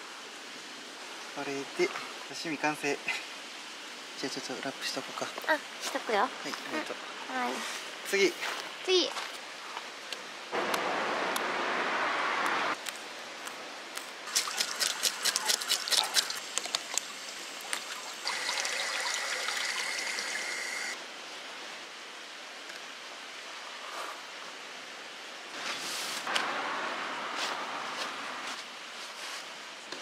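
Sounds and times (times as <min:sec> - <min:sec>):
water running: 0:14.3 - 0:21.0.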